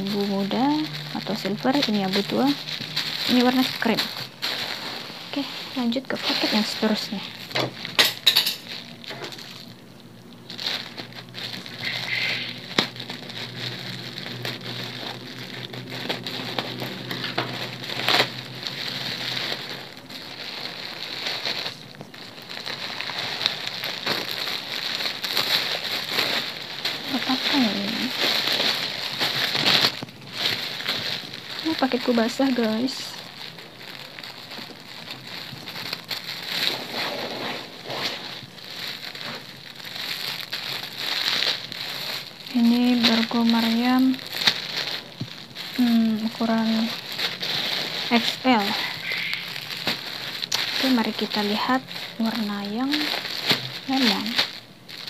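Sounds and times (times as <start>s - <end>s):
plastic bag crinkling: 0.0s - 55.0s.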